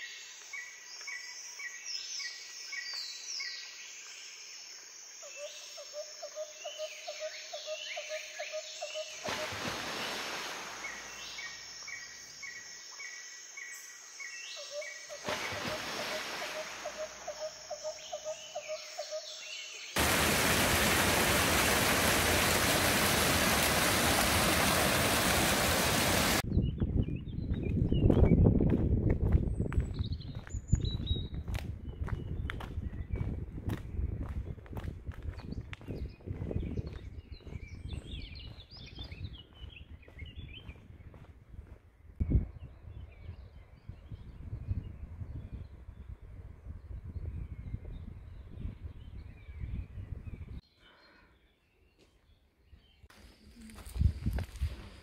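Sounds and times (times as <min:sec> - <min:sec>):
small waterfall splashing: 0:09.2 - 0:11.2, 0:15.2 - 0:16.9, 0:20.0 - 0:26.4
birds singing: 0:10.8 - 0:20.0, 0:35.3 - 0:41.3.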